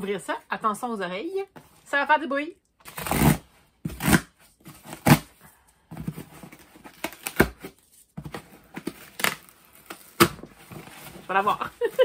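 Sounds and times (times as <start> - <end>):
tape and cardboard ripping: 2.8 - 5.4, 6.8 - 10.9.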